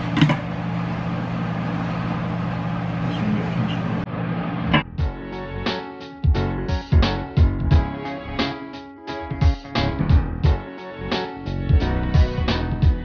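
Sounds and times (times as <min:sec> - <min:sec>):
low machine hum: 0:00.0 - 0:05.1
background music with a beat: 0:04.8 - 0:13.0.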